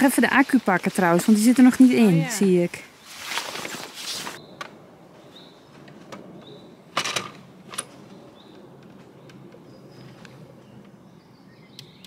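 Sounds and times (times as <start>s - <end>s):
rustling handling: 3.1s - 4.4s.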